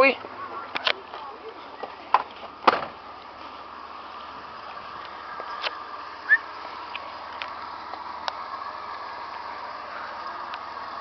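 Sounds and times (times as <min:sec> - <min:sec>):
van door shutting: 0:02.6 - 0:03.0
short rising chirp: 0:06.3 - 0:06.5.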